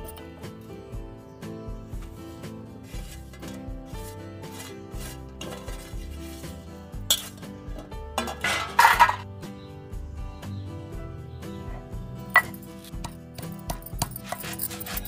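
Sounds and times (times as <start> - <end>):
steel plate clattering: 7.1 - 9.3.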